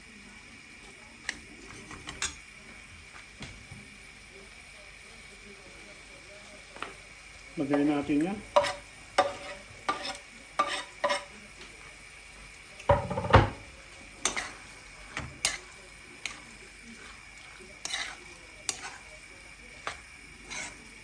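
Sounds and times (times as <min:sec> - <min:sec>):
spoon stirring frying pan: 0:00.8 - 0:03.9, 0:05.9 - 0:21.0
spoon scraping wooden board: 0:19.9 - 0:20.8.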